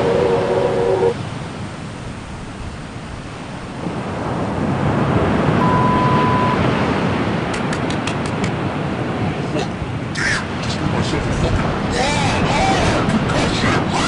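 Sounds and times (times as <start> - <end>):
steady rushing noise: 0.0 - 14.0
steady beep: 5.6 - 6.6.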